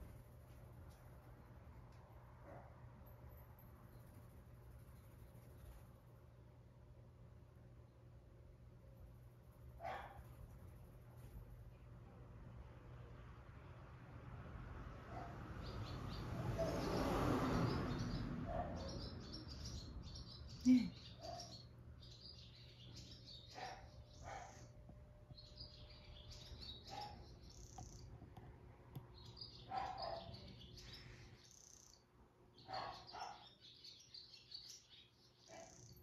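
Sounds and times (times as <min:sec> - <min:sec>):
swallows twittering: 0:15.6 - 0:28.2, 0:29.2 - 0:32.0, 0:32.6 - 0:36.0.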